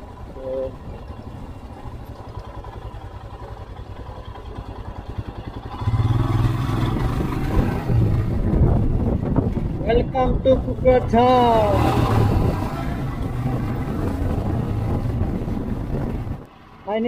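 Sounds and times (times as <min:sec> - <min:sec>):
motorcycle engine: 0:00.0 - 0:17.0
wind noise: 0:06.1 - 0:16.5.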